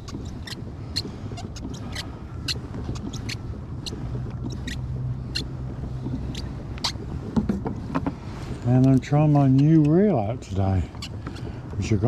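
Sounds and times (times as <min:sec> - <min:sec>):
small birds chirping: 0:00.0 - 0:07.0
steady low rumble: 0:00.0 - 0:12.0.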